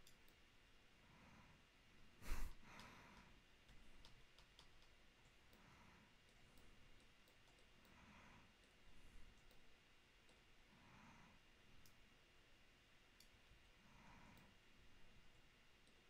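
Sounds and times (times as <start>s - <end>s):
computer mouse clicks: 0.0s - 0.4s, 2.8s - 8.0s, 8.6s - 10.5s, 11.8s - 12.0s, 13.1s - 13.6s, 14.3s - 14.6s
breath on microphone: 2.2s - 3.2s.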